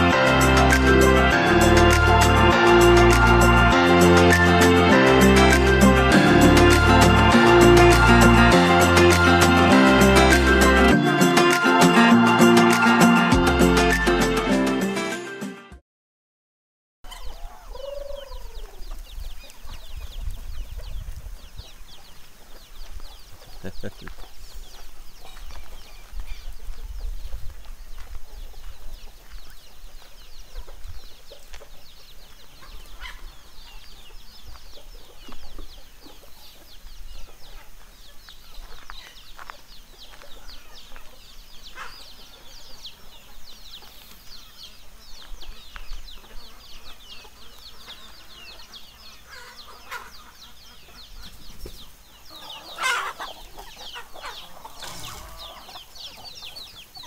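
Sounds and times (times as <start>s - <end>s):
loud chicken call: 17.1s - 19.0s, 47.2s - 51.1s, 52.3s - 56.6s
chickens clucking: 17.1s - 57.0s.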